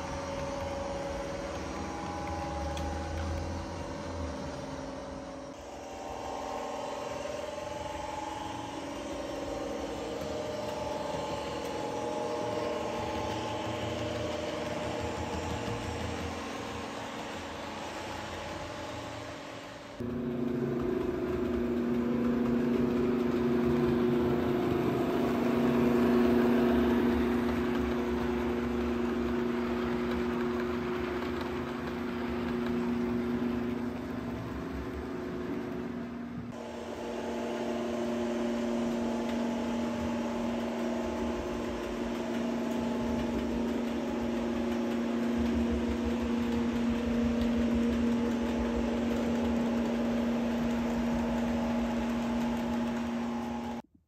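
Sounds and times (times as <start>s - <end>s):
model train motor hum: 0.0s - 53.9s.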